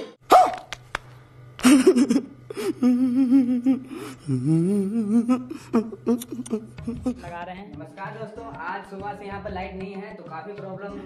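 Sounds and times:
man whimpering: 0:01.7 - 0:07.2.

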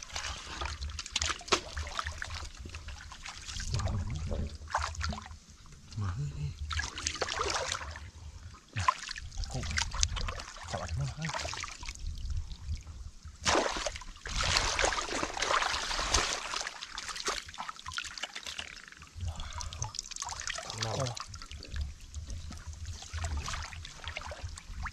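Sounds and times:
hands splashing in muddy water: 0:13.4 - 0:18.9.

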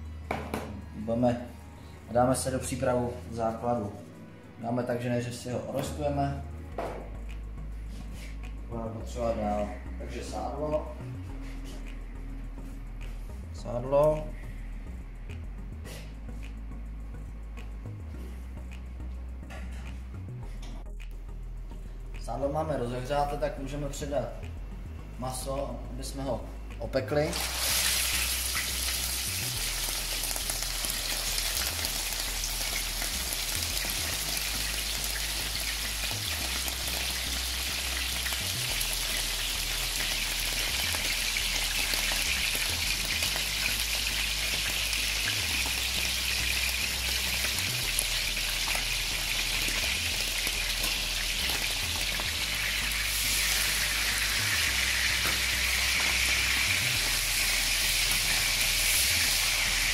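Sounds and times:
meat sizzling in hot fat: 0:27.3 - 0:59.9.

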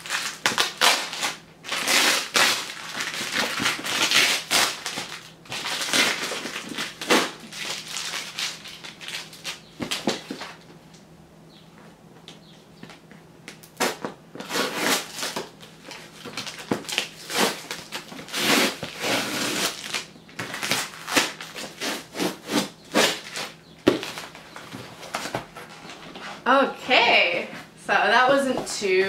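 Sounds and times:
packing tape ripping off cardboard: 0:00.0 - 0:10.6, 0:13.6 - 0:26.1.

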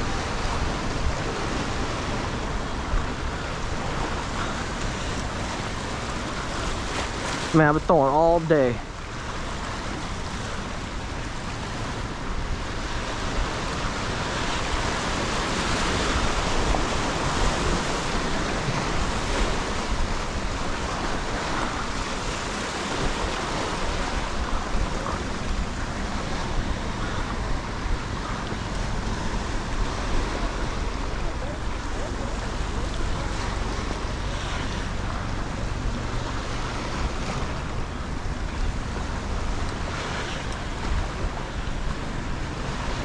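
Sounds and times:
wind rumbling on microphone: 0:00.0 - 0:07.8, 0:08.5 - 0:43.0
ocean surf breaking on rocks: 0:00.0 - 0:43.0.

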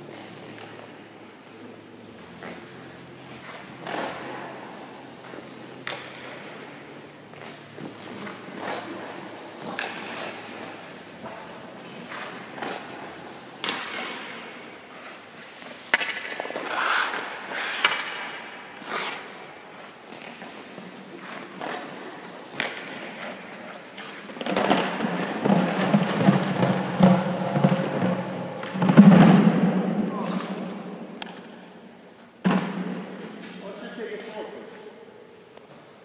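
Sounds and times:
skate blades scraping on ice: 0:00.0 - 0:31.6
goalie pads thudding: 0:20.2 - 0:31.6, 0:32.4 - 0:33.6.

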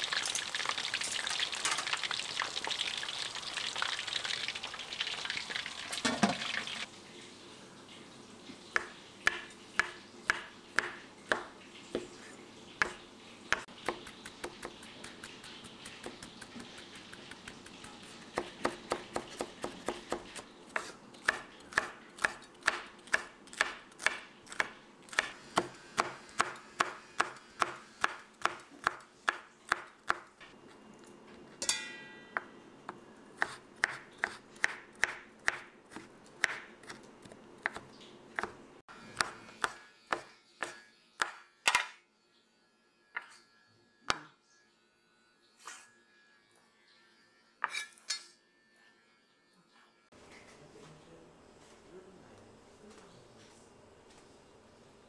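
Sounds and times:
knife chopping on cutting board: 0:08.8 - 0:12.1, 0:12.8 - 0:30.3, 0:33.4 - 0:42.0.

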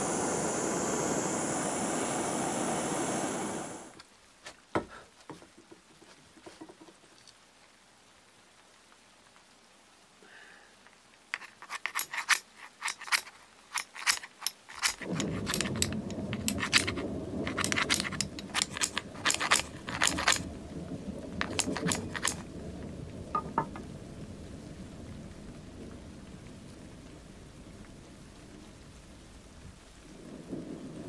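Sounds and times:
steady low rushing noise: 0:00.0 - 0:04.0
sharp metallic clicks and clinks: 0:11.3 - 0:20.5, 0:21.4 - 0:22.5.

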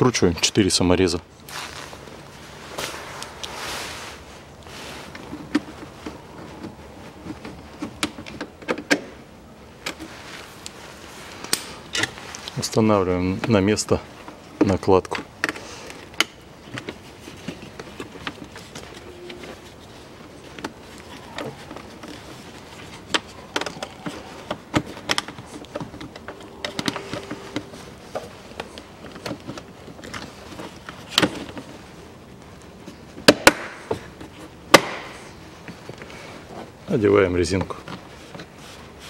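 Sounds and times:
plastic rustling: 0:01.4 - 0:08.3.

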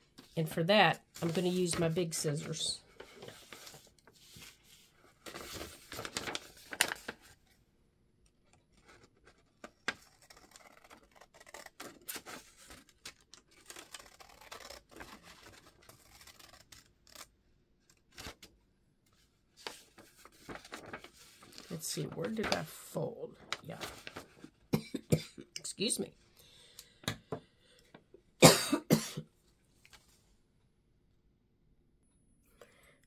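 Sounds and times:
paper rustling: 0:01.1 - 0:07.5, 0:08.7 - 0:17.2, 0:19.2 - 0:24.5
scissors snipping paper: 0:09.9 - 0:17.2.

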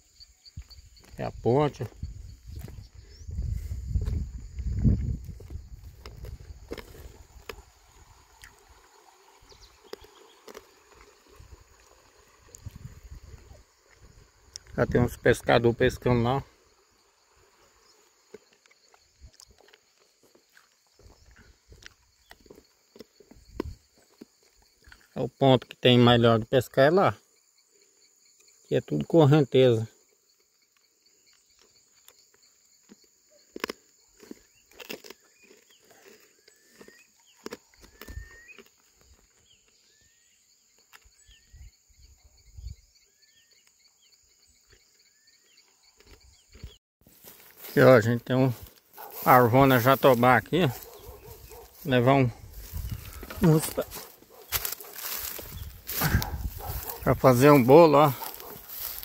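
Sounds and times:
high insect drone: 0:00.0 - 0:46.4, 0:47.1 - 0:59.0
low rumbling on microphone: 0:02.0 - 0:06.6.

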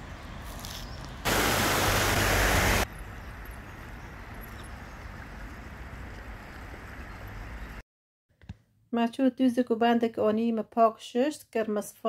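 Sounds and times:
steady outdoor hiss: 0:00.0 - 0:07.8
stream rushing over stones: 0:01.2 - 0:02.9.

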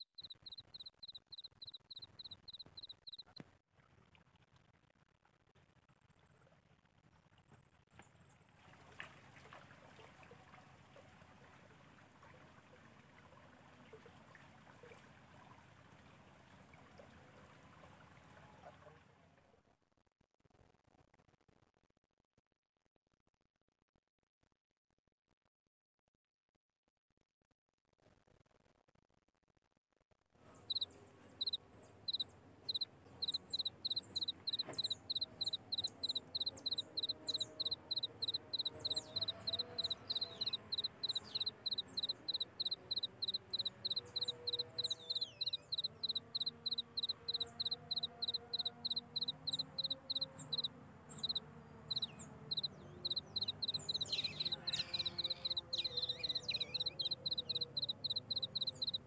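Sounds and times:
insects chirping rhythmically: 0:00.0 - 0:03.2, 0:30.6 - 0:59.0.

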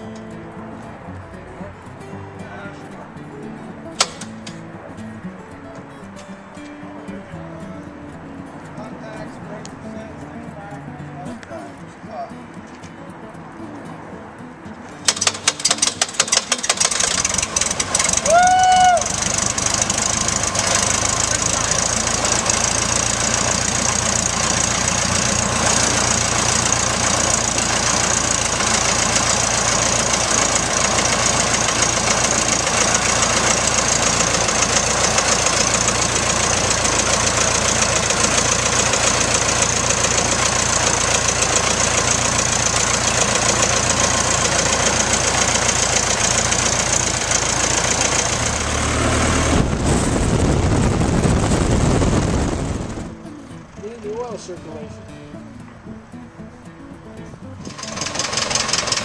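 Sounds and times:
small aircraft engine idling: 0:15.0 - 0:53.2, 0:57.6 - 0:59.0
deep engine rumble in cabin: 0:17.1 - 0:53.1.

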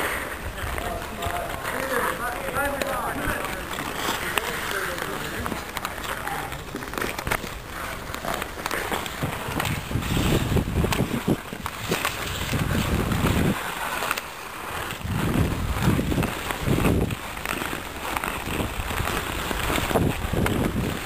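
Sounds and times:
skate blades scraping on ice: 0:00.0 - 0:21.0
wind noise on microphone: 0:07.1 - 0:21.0.

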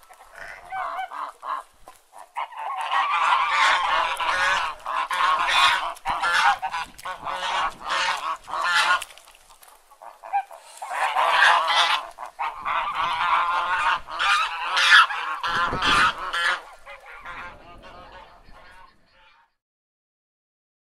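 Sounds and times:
geese honking: 0:00.0 - 0:19.6.

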